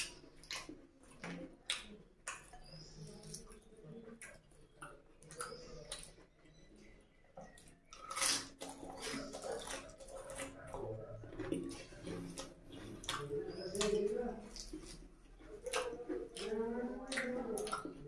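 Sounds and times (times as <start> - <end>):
mouth clicks and lip smacks: 0.0 - 6.7, 7.4 - 18.0
chewing: 0.0 - 18.0
fingers squelching in curry: 0.0 - 18.0
wet bite: 7.4 - 18.0.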